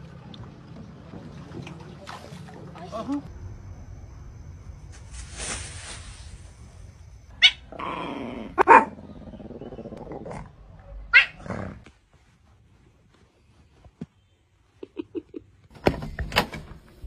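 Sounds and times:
animal growling: 0:07.6 - 0:11.9.

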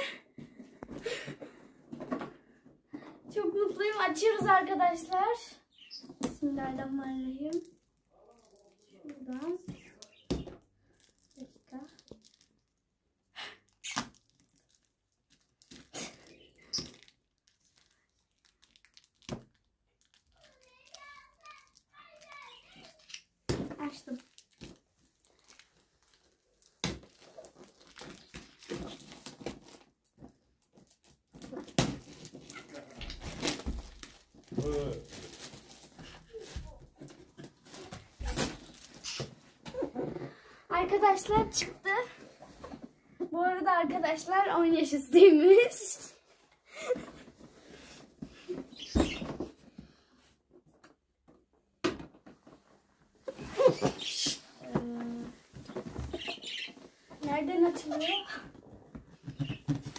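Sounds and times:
plastic wrap crinkling: 0:07.0 - 0:12.9, 0:13.7 - 0:39.5.

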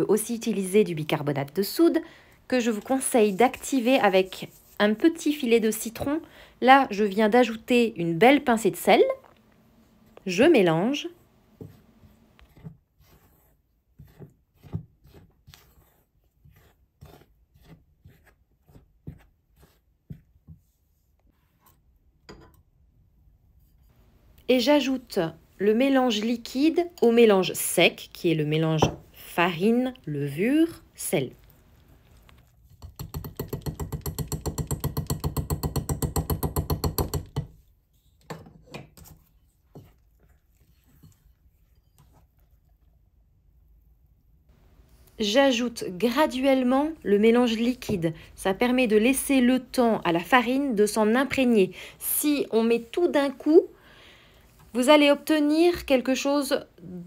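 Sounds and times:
spatula scraping a glass bowl: 0:02.6 - 0:05.2, 0:12.4 - 0:20.3, 0:36.7 - 0:42.4
whisk rattling in glass bowl: 0:32.8 - 0:37.5.

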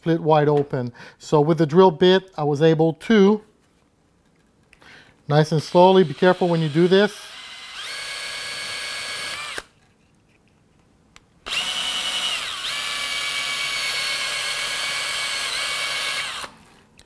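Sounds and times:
cordless drill whining: 0:05.8 - 0:09.7, 0:11.5 - 0:16.8.

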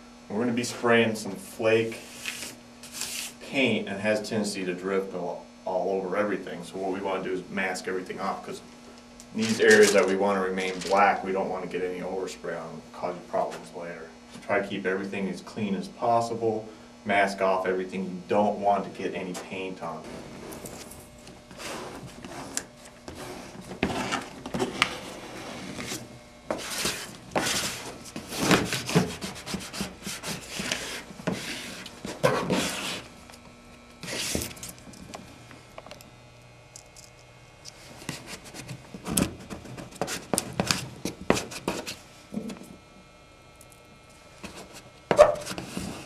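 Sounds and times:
squeegee scraping over tape: 0:02.0 - 0:03.4, 0:20.0 - 0:33.1, 0:34.0 - 0:34.9.

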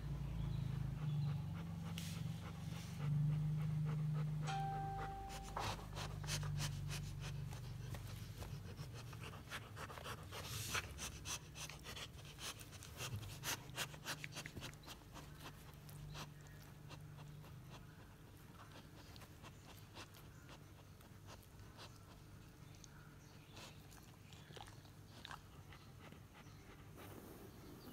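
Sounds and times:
dog panting: 0:00.4 - 0:27.9
brief high tone: 0:04.4 - 0:05.8.

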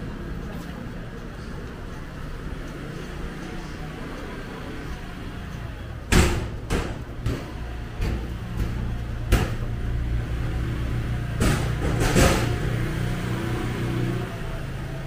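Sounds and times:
sharp knocks and clatters: 0:06.1 - 0:09.8, 0:11.3 - 0:12.8.

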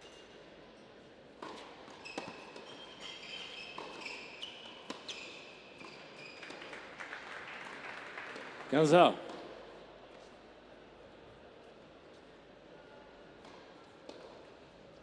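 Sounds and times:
shoes squeaking on court: 0:01.4 - 0:06.8.

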